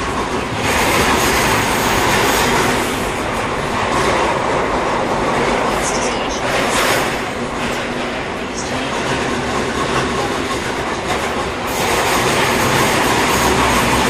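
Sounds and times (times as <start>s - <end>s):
subway train wheels rumbling: 0.0s - 14.0s
sharp clacks of wheels: 6.4s - 14.0s.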